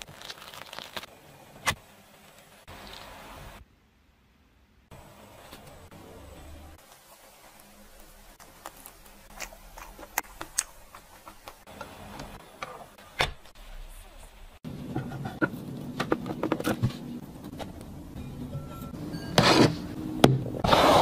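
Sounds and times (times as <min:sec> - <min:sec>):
plastic being handled: 0:00.0 - 0:03.1.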